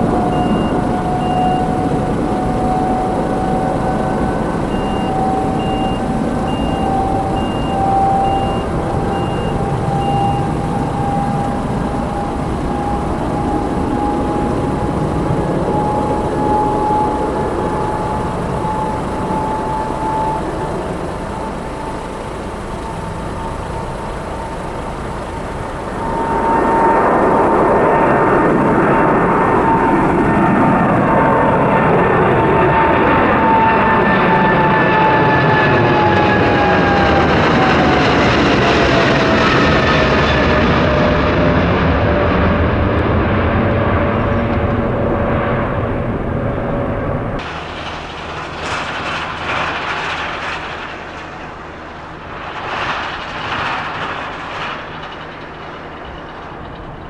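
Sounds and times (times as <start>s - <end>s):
reversing alarm beeping: 0.0s - 42.2s
engine rumble with rising whine: 0.0s - 57.0s
loud engine noise: 0.0s - 57.0s.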